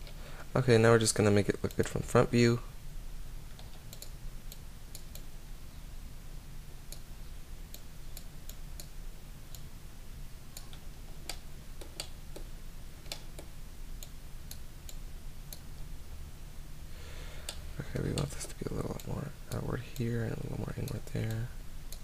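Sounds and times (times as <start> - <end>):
low steady hum: 0.0 - 22.0
computer mouse clicking: 3.5 - 5.3, 10.5 - 15.7, 20.8 - 22.0.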